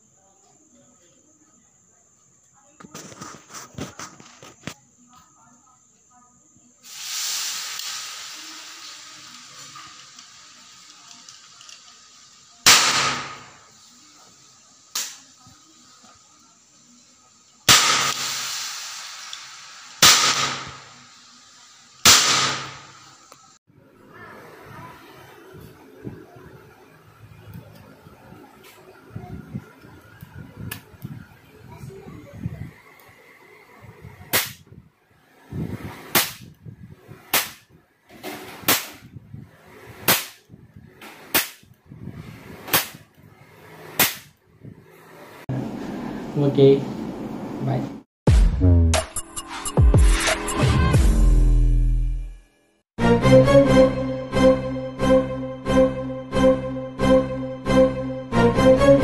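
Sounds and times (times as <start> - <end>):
toy cap gun shots: 12.6 - 13.6, 14.9 - 15.3, 17.7 - 21.0, 22.0 - 23.0, 34.3 - 34.6, 36.1 - 36.5, 37.3 - 37.6, 38.6 - 39.1, 40.1 - 40.4, 41.3 - 41.7, 42.7 - 43.0, 44.0 - 44.3
cap gun cracks: 12.7 - 13.5, 15.0 - 15.2.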